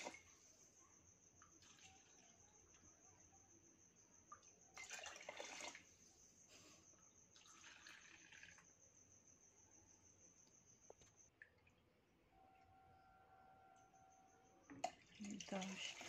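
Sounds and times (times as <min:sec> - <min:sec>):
milk pouring and splashing: 0:01.4 - 0:02.8, 0:04.3 - 0:06.0, 0:07.2 - 0:08.8, 0:14.7 - 0:16.0.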